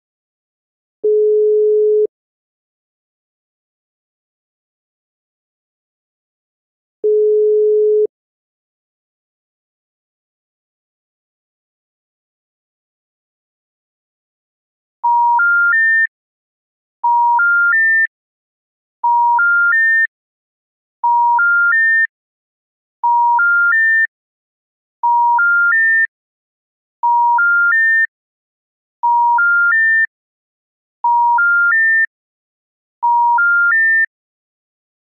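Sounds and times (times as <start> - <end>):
rising telephone beeps: 1.0 - 2.1, 7.0 - 8.1, 25.0 - 25.7, 33.0 - 33.4.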